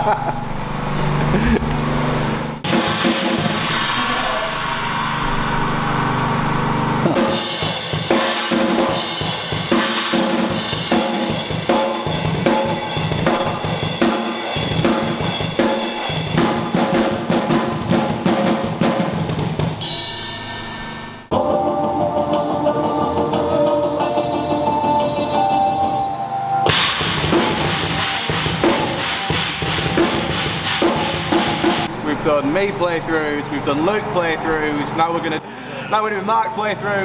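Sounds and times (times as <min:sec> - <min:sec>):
drum kit played hard: 0:01.1 - 0:25.8, 0:26.6 - 0:32.0
background music: 0:21.2 - 0:31.9.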